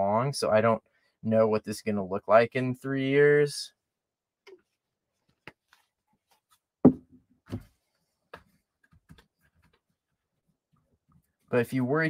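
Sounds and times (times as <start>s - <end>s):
glue bottle and brush knocking on table: 6.8s - 7.7s.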